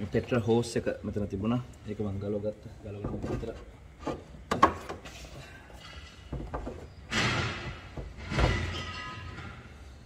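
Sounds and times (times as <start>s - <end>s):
scraping rattles of engine parts: 3.0s - 9.8s.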